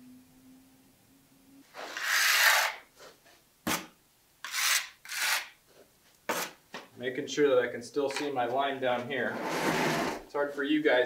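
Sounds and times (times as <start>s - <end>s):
tile scraping on concrete: 1.7s - 5.6s, 6.3s - 6.6s, 9.4s - 10.2s.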